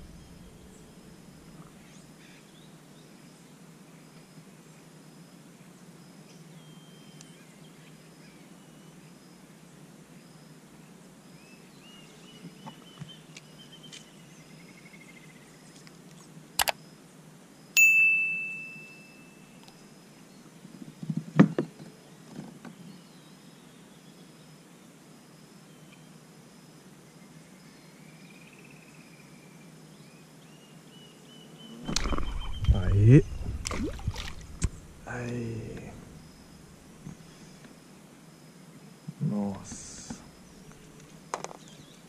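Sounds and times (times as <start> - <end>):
bell ding: 17.8 - 19.6.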